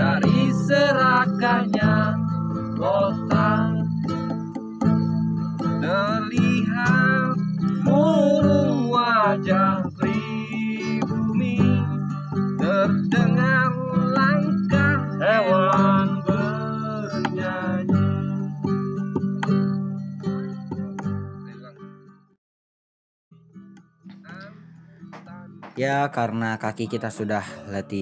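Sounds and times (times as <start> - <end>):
man singing: 0.0 - 4.2, 5.7 - 18.7
acoustic guitar strumming: 0.0 - 22.3, 23.4 - 28.0.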